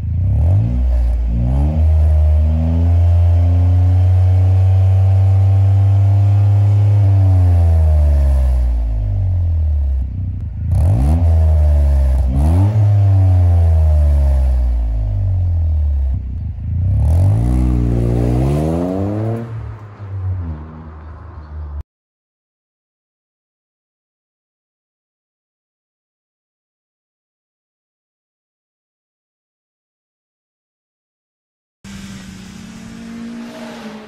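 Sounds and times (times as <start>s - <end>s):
car engine revving: 0.0s - 21.4s, 31.9s - 34.0s.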